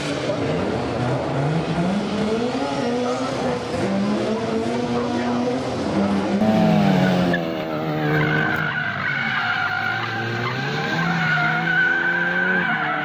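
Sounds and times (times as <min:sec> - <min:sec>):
car engine revving: 0:00.4 - 0:13.0
tires squealing: 0:06.4 - 0:13.0.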